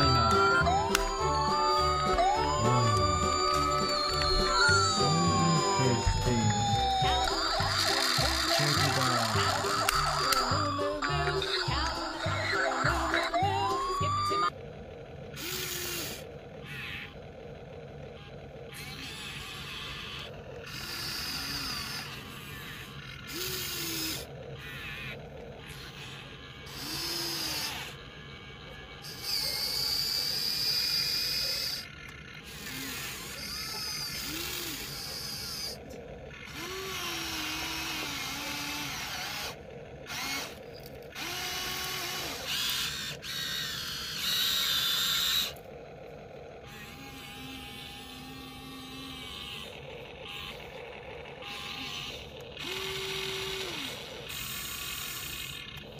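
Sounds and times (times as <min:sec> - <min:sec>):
toy gear motors whirring: 0:00.0 - 0:55.9.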